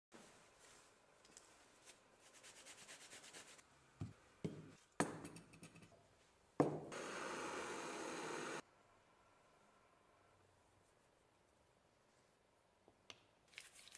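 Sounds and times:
steady hiss: 6.9s - 8.6s.

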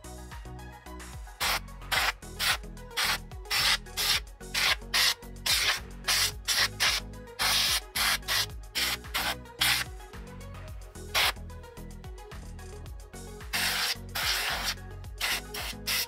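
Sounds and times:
compressed air blasts hissing: 1.3s - 9.9s, 11.1s - 11.4s, 13.5s - 16.0s.

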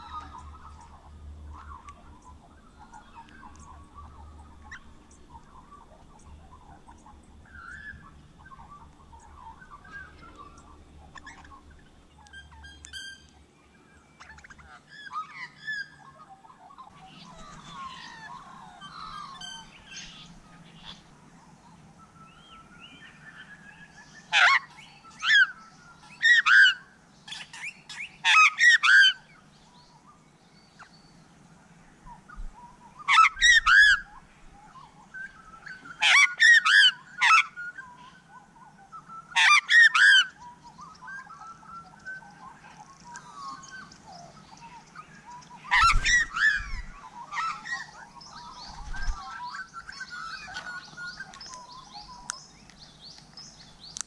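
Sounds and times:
faint birdsong: 0.0s - 54.0s
magpie carolling: 35.2s - 42.6s.

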